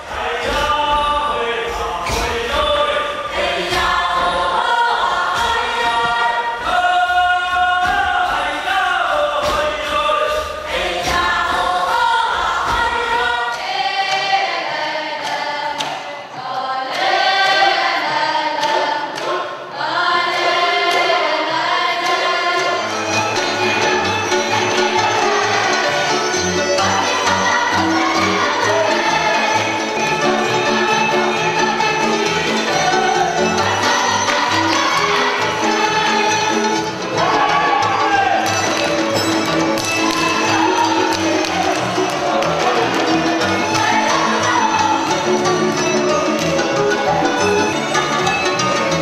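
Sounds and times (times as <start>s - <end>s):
group singing a chant: 0.0s - 49.0s
regular thuds: 0.1s - 13.4s.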